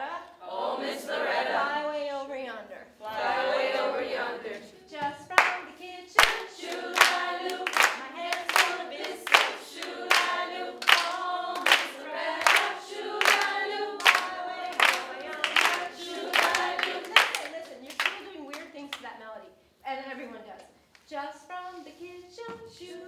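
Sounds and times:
group singing unaccompanied: 0.4s - 2.2s, 3.0s - 18.6s, 22.4s - 23.0s
hand claps keeping a beat: 5.0s - 19.0s.

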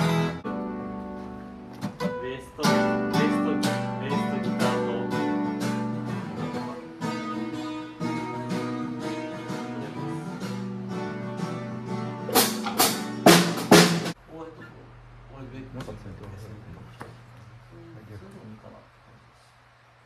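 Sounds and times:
guitar playing: 0.0s - 14.2s.

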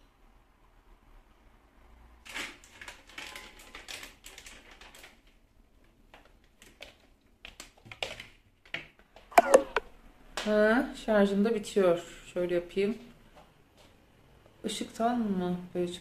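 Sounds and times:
small objects clicking and rustling: 2.3s - 5.4s.

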